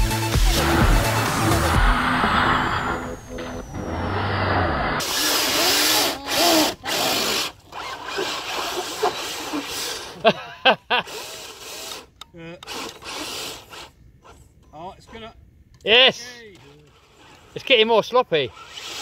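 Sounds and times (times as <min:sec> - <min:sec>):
electric motor whining: 0:00.0 - 0:10.1
tyres churning through mud: 0:00.0 - 0:10.3.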